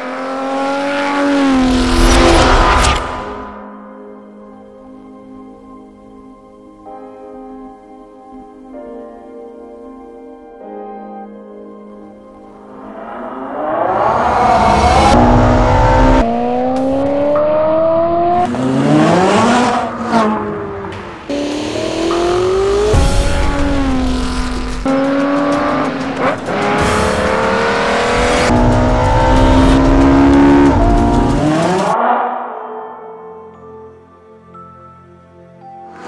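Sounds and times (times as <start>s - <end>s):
sports car engine accelerating: 0.0s - 3.6s, 12.7s - 33.5s.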